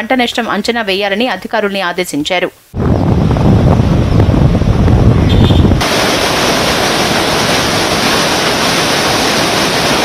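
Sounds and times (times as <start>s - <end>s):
river water rushing: 5.8s - 10.0s.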